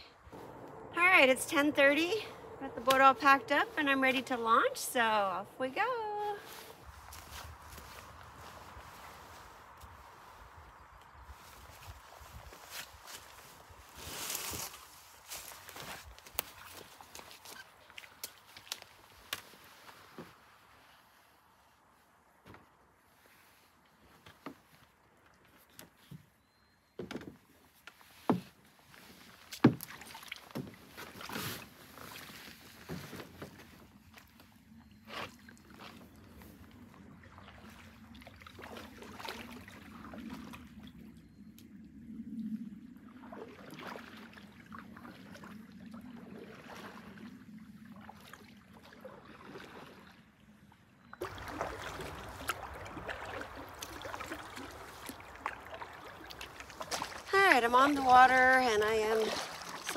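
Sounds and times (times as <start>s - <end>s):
highway traffic hum: 0.2s - 5.6s
paddle strokes and splashes: 6.2s - 26.4s, 27.0s - 41.4s, 42.7s - 59.9s
water lapping against hull: 27.4s - 41.4s, 42.2s - 59.9s.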